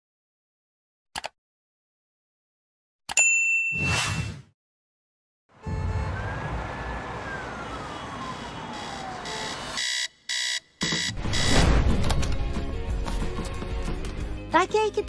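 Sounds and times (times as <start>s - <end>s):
street traffic noise: 5.5s - 9.9s
digital alarm clock beeping: 8.7s - 11.6s.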